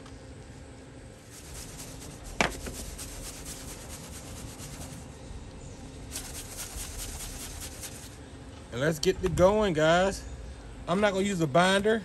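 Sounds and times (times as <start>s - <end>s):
shaker set down knock: 2.3s - 2.9s.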